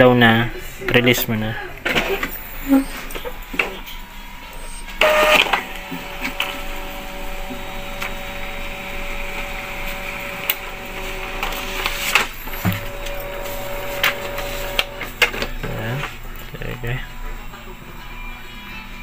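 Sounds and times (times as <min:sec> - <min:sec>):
printer motor whirring: 0:01.8 - 0:16.7.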